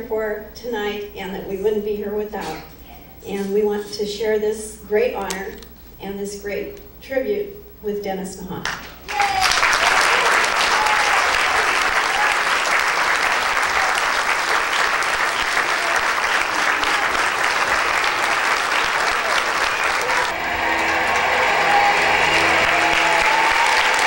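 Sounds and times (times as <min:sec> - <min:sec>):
audience applauding: 0:09.1 - 0:24.0.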